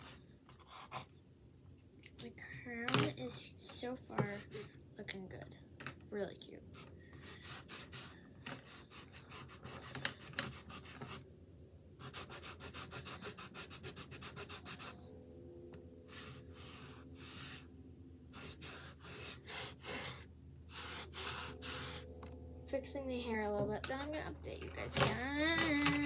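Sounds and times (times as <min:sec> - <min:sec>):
marker scrubbing on canvas: 0:00.0 - 0:01.1, 0:04.1 - 0:04.8, 0:06.7 - 0:11.2, 0:12.0 - 0:15.0, 0:16.1 - 0:17.7, 0:18.3 - 0:22.1.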